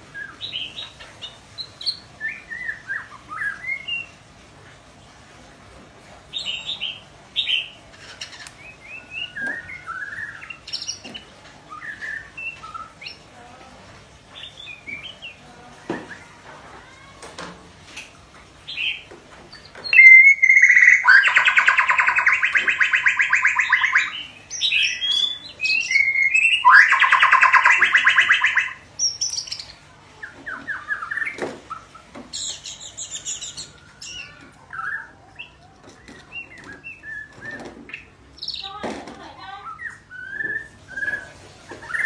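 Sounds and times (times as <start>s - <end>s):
bird chirps and whistles: 19.8s - 29.7s, 36.3s - 38.7s, 39.6s - 42.0s
buzzy bird trills: 19.8s - 29.7s
high fluttering bird phrase: 19.9s - 28.8s.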